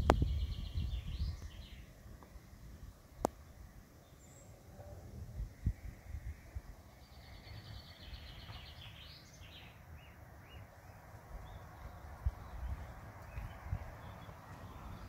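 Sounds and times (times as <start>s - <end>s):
low rumbling microphone noise: 0.0s - 3.7s, 4.4s - 7.2s
songbird singing: 0.0s - 15.0s.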